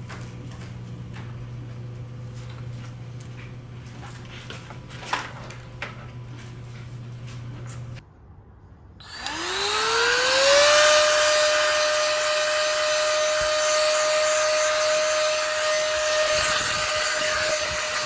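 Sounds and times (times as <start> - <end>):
handheld vacuum cleaner motor whine: 9.0 - 18.0.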